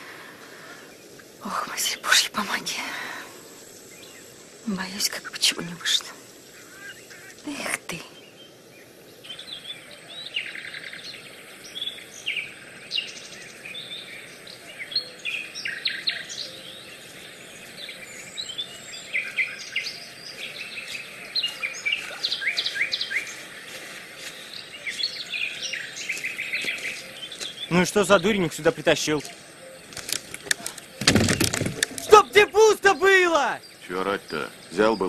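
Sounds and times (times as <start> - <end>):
songbirds singing: 0.0 - 35.0
steady outdoor hiss: 0.0 - 35.0.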